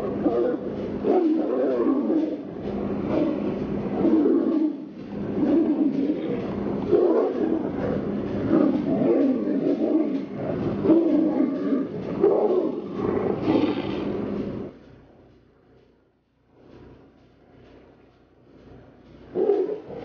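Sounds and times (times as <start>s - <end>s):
tigers roaring while fighting: 0.0s - 14.7s.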